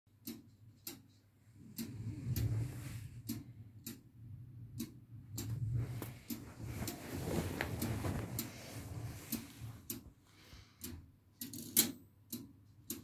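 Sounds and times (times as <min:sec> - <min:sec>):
clock ticking: 0:00.1 - 0:13.0
low background rumble: 0:01.6 - 0:10.0.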